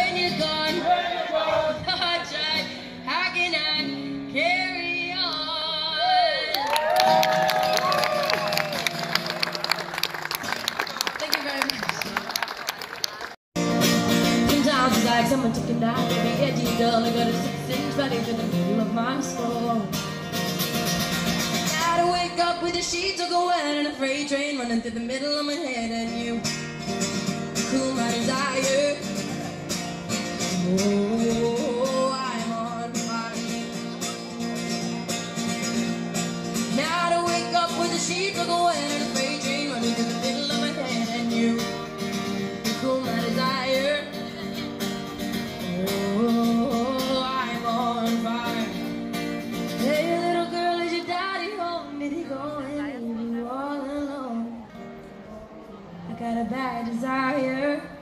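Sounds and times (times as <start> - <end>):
woman singing into microphone: 0.0 - 6.5, 14.4 - 20.0, 21.6 - 26.6, 27.6 - 29.3, 30.4 - 33.5, 36.7 - 41.9, 42.6 - 44.6, 45.6 - 48.9, 49.7 - 54.9, 56.0 - 58.0
acoustic guitar strumming: 13.6 - 23.9, 25.7 - 51.8.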